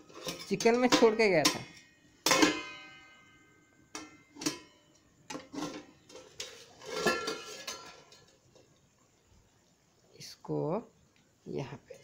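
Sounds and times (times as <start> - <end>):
metal lid clattering on pot: 0.0 - 3.0, 3.9 - 8.4.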